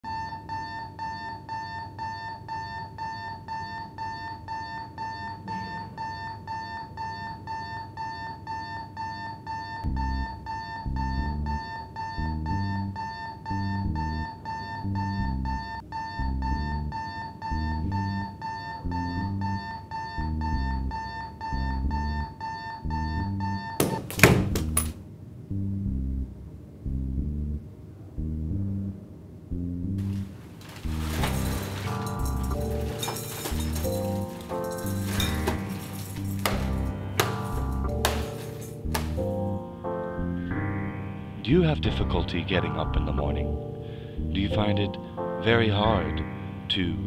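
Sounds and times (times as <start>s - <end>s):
alarm clock beeping: 0.0s - 24.1s
music with low bass line: 25.5s - 27.6s, 28.2s - 30.3s, 30.9s - 47.0s
sharp knocks: 35.2s - 39.4s.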